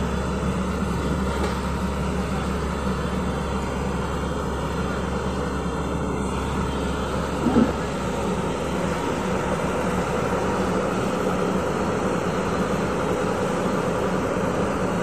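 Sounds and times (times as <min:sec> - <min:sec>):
excavator diesel engine under load: 0:00.0 - 0:15.0.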